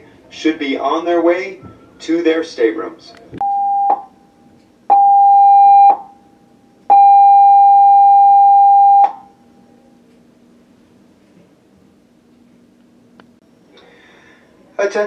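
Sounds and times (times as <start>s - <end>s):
electronic alarm blasts: 4.9s - 6.1s, 6.9s - 9.3s.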